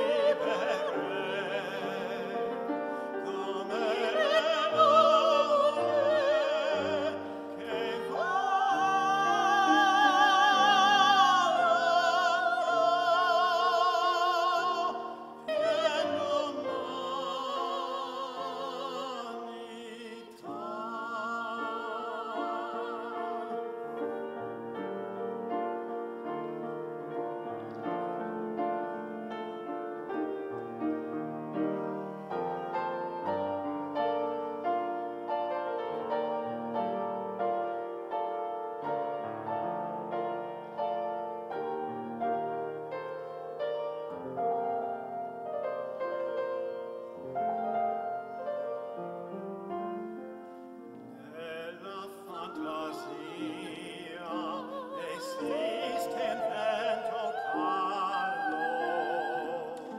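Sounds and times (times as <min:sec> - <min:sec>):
operatic singing: 0:00.0 - 0:25.3, 0:51.2 - 0:59.9
grand piano accompaniment: 0:00.0 - 0:59.9.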